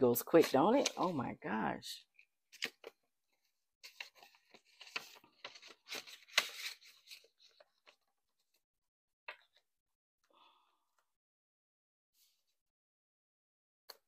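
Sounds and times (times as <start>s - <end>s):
paper money and envelope rustling: 0.2s - 1.4s, 2.5s - 8.6s.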